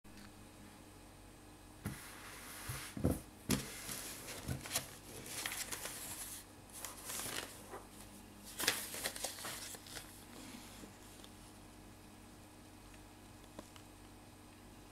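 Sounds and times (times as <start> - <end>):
plastic crinkling: 3.5 - 10.4.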